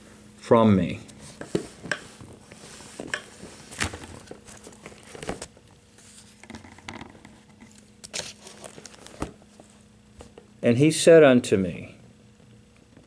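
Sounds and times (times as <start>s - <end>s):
faint steady hum: 0.0s - 13.0s
thin paper rustling: 8.1s - 9.3s.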